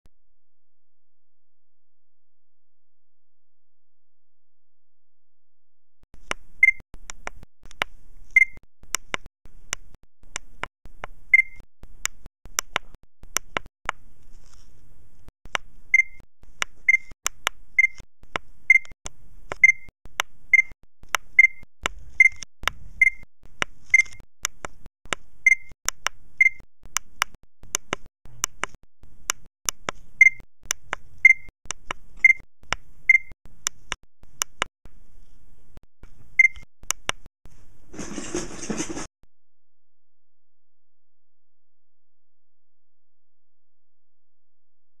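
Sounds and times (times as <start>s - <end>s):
sharp clicks: 6.2s - 14.0s, 15.4s - 34.7s
short electronic beeps: 6.6s - 6.8s, 8.4s - 8.6s, 11.3s - 11.6s, 15.9s - 16.2s, 16.9s - 17.2s, 17.8s - 18.0s, 18.7s - 18.9s, 19.6s - 19.9s, 20.5s - 20.8s, 21.4s - 22.4s, 23.0s - 23.3s, 25.4s - 25.8s, 26.4s - 26.7s, 30.2s - 30.5s, 31.2s - 31.5s, 32.2s - 32.5s, 33.1s - 33.4s, 36.4s - 36.7s.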